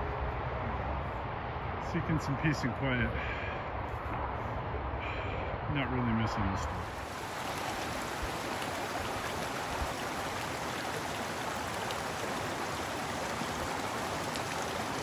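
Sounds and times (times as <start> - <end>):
creek rushing over rocks: 6.7 - 15.0.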